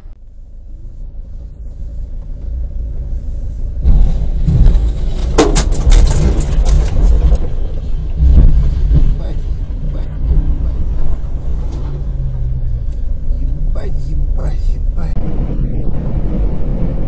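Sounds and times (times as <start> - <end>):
road vehicle rumble: 0.0 - 17.0
sharp cracks and knocks: 3.9 - 9.4.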